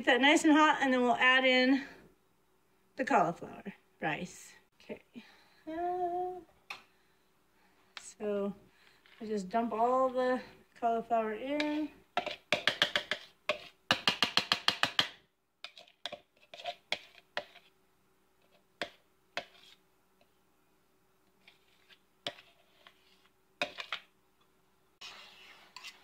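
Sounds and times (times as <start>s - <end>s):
cauliflower scraped into skillet: 15.6s - 17.8s, 19.4s - 19.8s, 21.4s - 24.1s, 25.0s - 26.0s.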